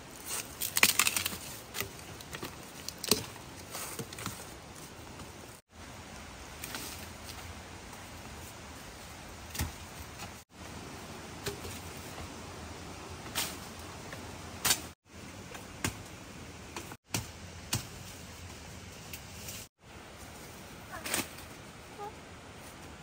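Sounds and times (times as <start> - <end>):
twigs snapping and cracking: 0.3 - 4.3.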